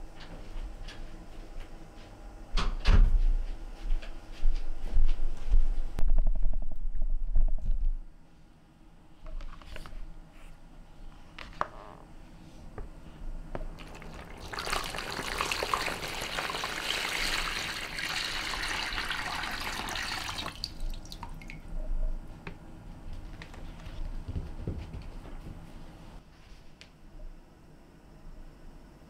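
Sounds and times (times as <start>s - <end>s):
water pouring between basins: 13.8s - 21.6s
water dripping: 13.8s - 21.7s.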